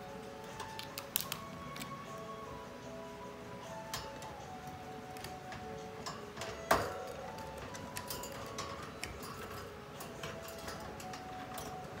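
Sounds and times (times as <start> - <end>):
parrot clicking on cage bars: 0.5 - 1.9, 5.2 - 12.0.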